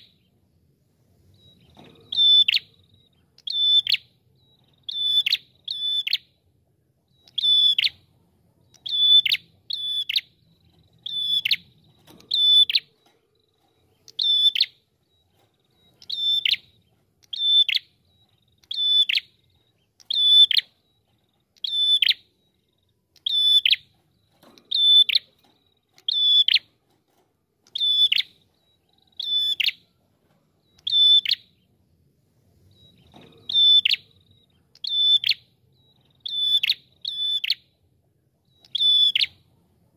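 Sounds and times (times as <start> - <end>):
bird singing high ringing notes: 1.3 - 6.4, 7.1 - 26.8, 27.6 - 30.0, 32.6 - 37.8.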